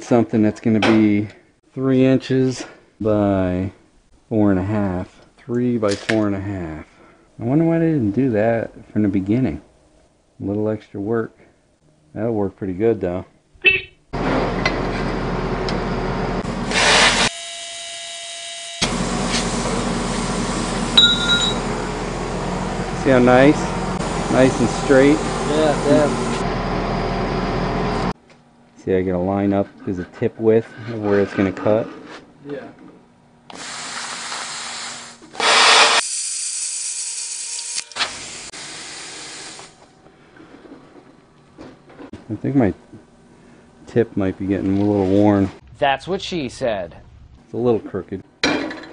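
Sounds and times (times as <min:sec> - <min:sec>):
air hissing from torch: 0:16.6 - 0:17.6, 0:18.3 - 0:21.1, 0:33.6 - 0:36.1, 0:37.8 - 0:39.8
plasma cutter hissing: 0:24.0 - 0:26.4, 0:33.7 - 0:39.7.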